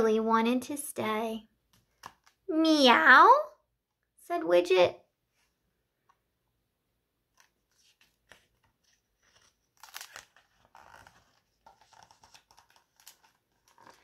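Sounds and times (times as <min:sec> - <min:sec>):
paper page rustling: 0:07.3 - 0:14.0.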